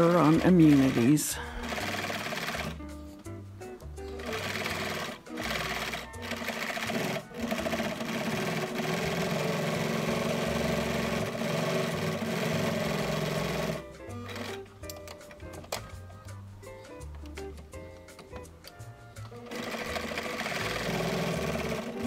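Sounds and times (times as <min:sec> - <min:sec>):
sewing machine stitching: 0:00.0 - 0:02.8, 0:04.2 - 0:14.6, 0:19.3 - 0:22.0
background music: 0:00.0 - 0:22.0.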